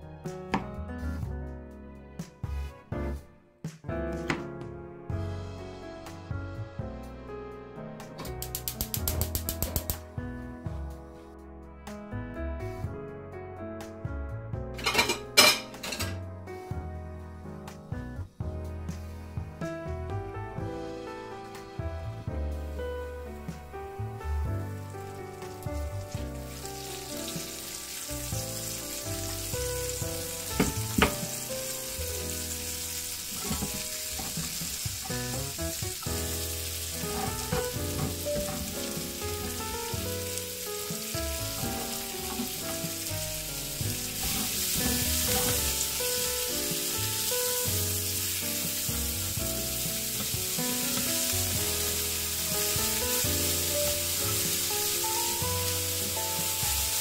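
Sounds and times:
garlic and onion sizzling: 0:08.4 - 0:10.0, 0:22.6 - 0:57.0
spatula stirring in pan: 0:33.3 - 0:35.2, 0:43.9 - 0:46.3.

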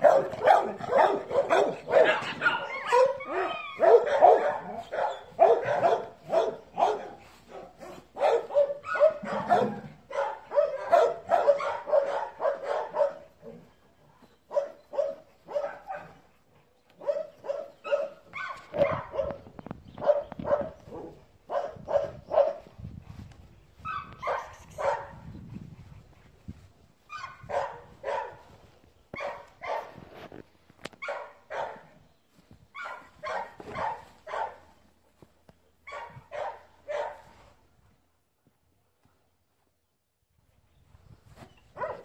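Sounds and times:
dog barking: 0:00.0 - 0:13.4, 0:14.5 - 0:16.2, 0:17.0 - 0:19.4, 0:20.0 - 0:22.7, 0:23.8 - 0:25.2, 0:27.1 - 0:28.4, 0:29.2 - 0:30.0, 0:31.0 - 0:31.9, 0:32.8 - 0:34.7, 0:35.9 - 0:37.3, 0:41.8 - 0:42.0.

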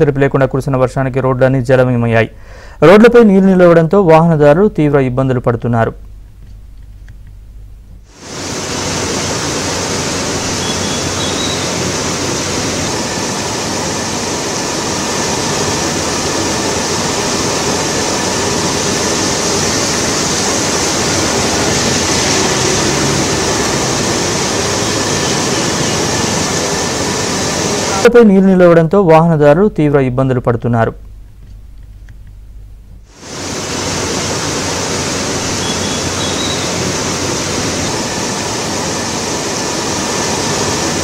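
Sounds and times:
floodwater rushing over wall: 0:08.1 - 0:28.1, 0:33.1 - 0:41.0.

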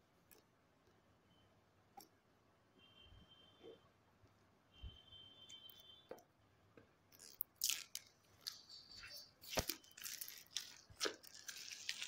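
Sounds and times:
plastic shrink-wrap tearing: 0:07.2 - 0:12.0.

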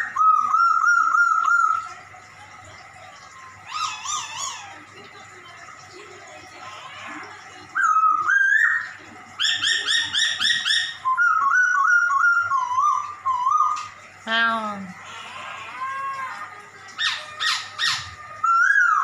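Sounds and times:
songbird whistling and warbling: 0:00.0 - 0:02.0, 0:07.7 - 0:14.0, 0:17.0 - 0:19.0.

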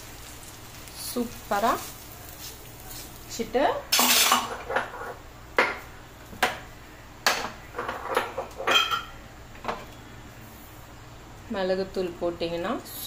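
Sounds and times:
dishes and utensils clinking: 0:03.9 - 0:05.8, 0:07.3 - 0:09.9.

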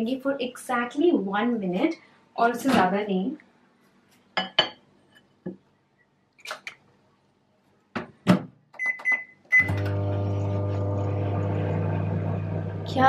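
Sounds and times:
short keypad beeps: 0:08.8 - 0:09.8
microwave oven humming: 0:09.5 - 0:13.0.

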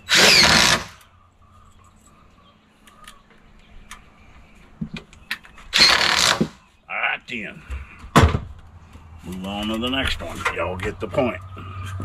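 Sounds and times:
drill driving a screw into metal: 0:00.1 - 0:01.0, 0:05.8 - 0:06.6
faint bird chirps: 0:01.0 - 0:06.0.

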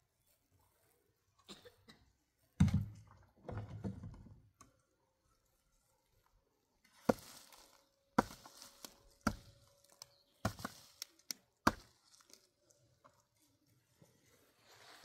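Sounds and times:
chopping strikes: 0:09.2 - 0:09.5, 0:11.6 - 0:11.9.

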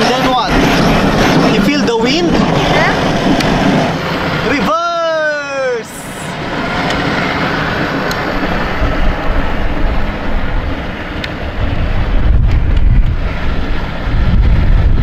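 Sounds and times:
electric toy motorcycle running: 0:00.0 - 0:04.6
wind buffeting microphone: 0:00.0 - 0:04.7, 0:05.8 - 0:15.0.

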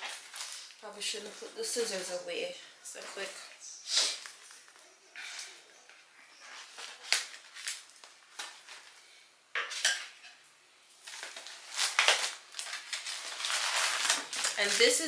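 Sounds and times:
packaging rustling and crinkling: 0:00.0 - 0:02.2, 0:06.4 - 0:09.0, 0:10.9 - 0:15.0.

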